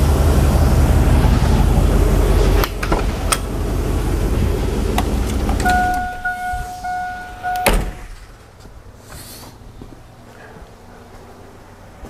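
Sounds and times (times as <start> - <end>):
truck engine drone: 0.0 - 12.0
electronic chime: 5.6 - 8.0.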